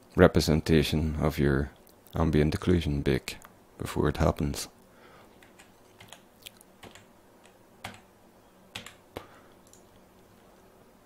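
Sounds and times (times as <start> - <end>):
faint electrical hum: 0.0 - 11.0
computer input clicks: 6.8 - 8.1.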